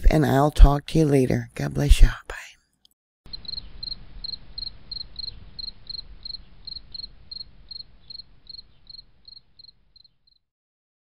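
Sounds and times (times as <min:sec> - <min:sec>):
cricket chirping: 0:03.3 - 0:10.4.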